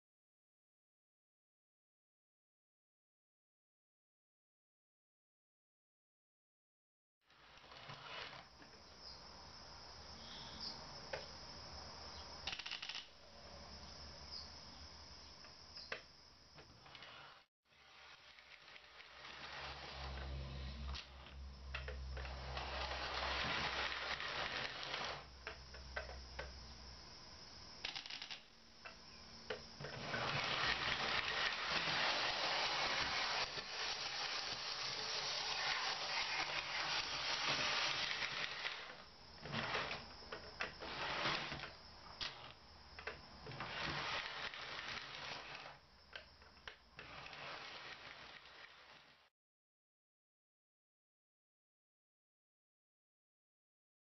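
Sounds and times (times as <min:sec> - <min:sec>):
model train motor whirring: 0:07.3 - 0:08.6, 0:16.8 - 0:25.6, 0:29.5 - 0:49.3
wheels clicking over rails: 0:18.4 - 0:26.5, 0:27.8 - 0:49.1.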